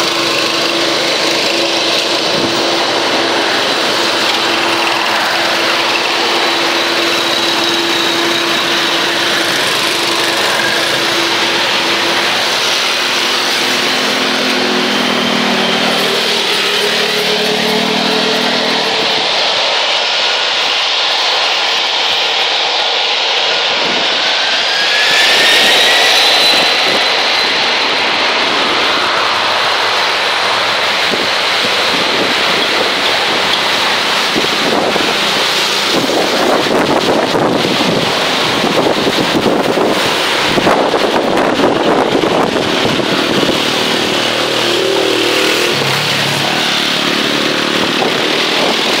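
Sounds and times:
wind buffeting microphone: 0:00.0 - 0:20.8, 0:23.3 - 0:49.0
car passing: 0:00.0 - 0:21.0, 0:23.6 - 0:49.0
distant jet engines rushing: 0:00.0 - 0:49.0
jet engine whine rising: 0:00.0 - 0:49.0.

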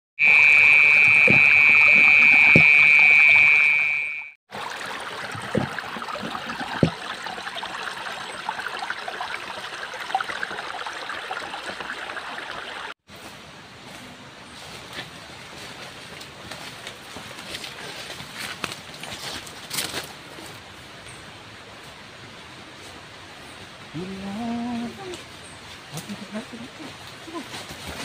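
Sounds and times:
loud high-pitched tone: 0:00.2 - 0:04.4
stream water trickling: 0:00.3 - 0:13.0.

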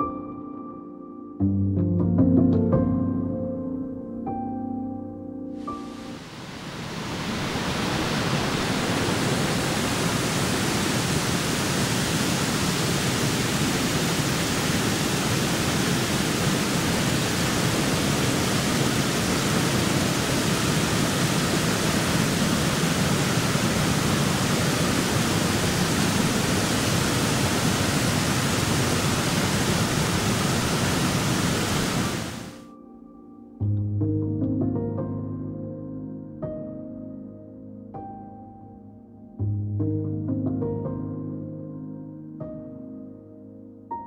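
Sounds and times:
waterfall rushing: 0:05.6 - 0:32.6.

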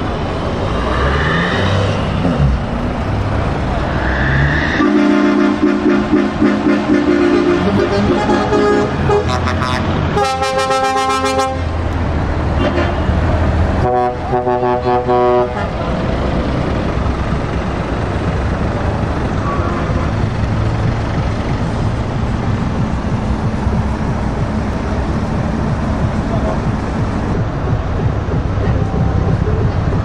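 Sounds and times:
diesel truck engines rumbling: 0:00.0 - 0:30.0
truck air horn blasts: 0:04.8 - 0:11.8, 0:13.8 - 0:15.8, 0:19.4 - 0:20.3.

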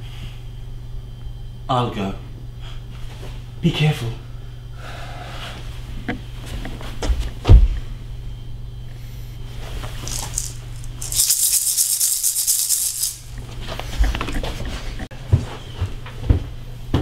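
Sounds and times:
maracas shaking: 0:10.0 - 0:13.4.

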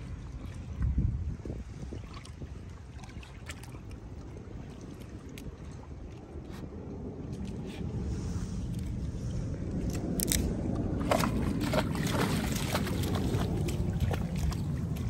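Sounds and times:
lapping waves: 0:00.0 - 0:15.0
wind: 0:00.0 - 0:15.0
dog lapping water: 0:10.9 - 0:15.0.

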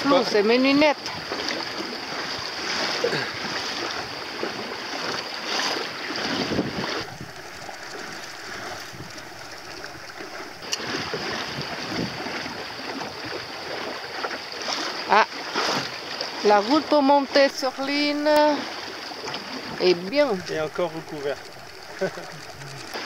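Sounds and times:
water rushing along boat hull: 0:00.0 - 0:23.0
wind buffeting microphone: 0:06.2 - 0:13.4, 0:16.8 - 0:23.0.

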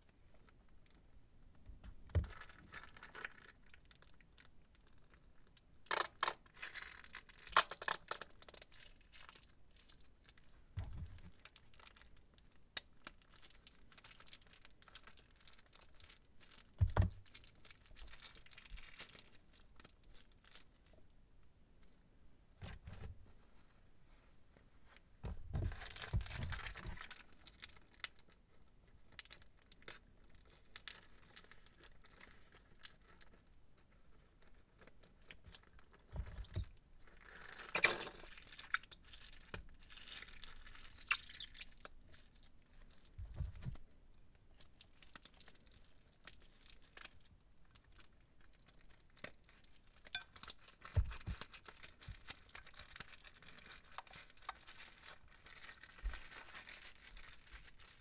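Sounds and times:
soft dull bumps: 0:24.8 - 0:26.6
plastic bags crinkling: 0:25.5 - 0:28.3, 0:48.6 - 0:58.0.

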